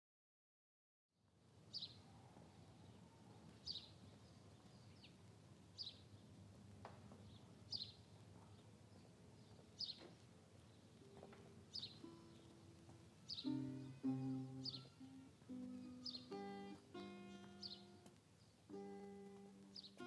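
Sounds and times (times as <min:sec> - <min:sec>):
bird high chirp: 0:11.7 - 0:20.0.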